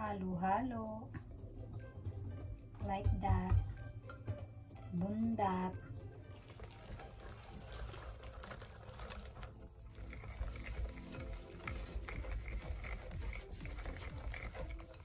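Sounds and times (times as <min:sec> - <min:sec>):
whisk beating batter: 0:01.7 - 0:15.0
whisk wires clicking on glass: 0:09.0 - 0:15.0.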